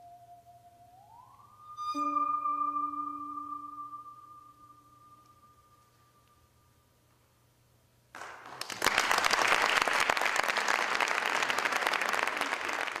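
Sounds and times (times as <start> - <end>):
faint high tone: 0.0 - 7.0
audience applauding: 8.2 - 13.0.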